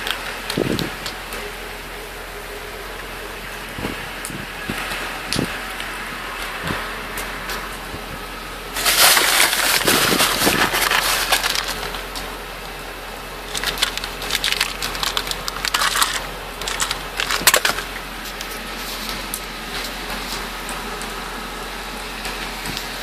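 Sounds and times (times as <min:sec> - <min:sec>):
plastic container crinkling: 0:08.7 - 0:12.3, 0:13.4 - 0:18.6.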